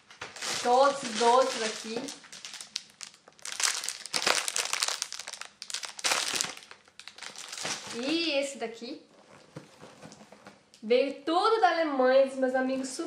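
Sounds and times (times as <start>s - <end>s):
crinkly packaging rustling: 0.0s - 8.4s.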